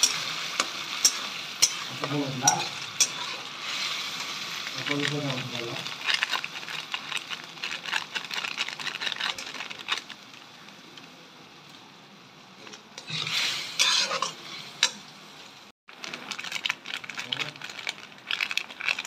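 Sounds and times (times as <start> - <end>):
metal spatula scraping a pan: 0.0 - 4.6, 12.6 - 15.0
food sizzling: 0.0 - 19.0.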